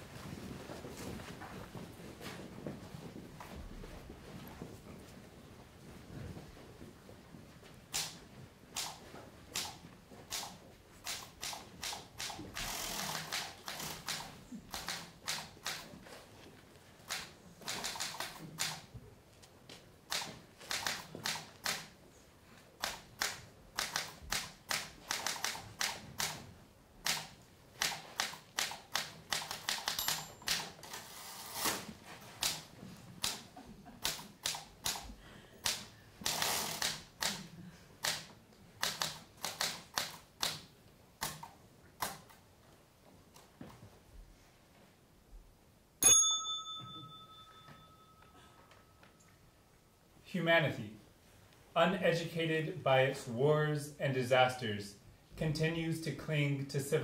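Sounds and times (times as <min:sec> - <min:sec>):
typewriter keys clacking: 0:27.1 - 0:31.1.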